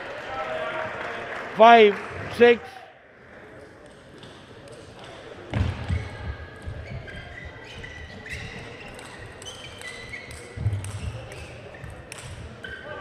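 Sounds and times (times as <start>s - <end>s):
shoes squeaking on floor: 5.9s - 13.0s.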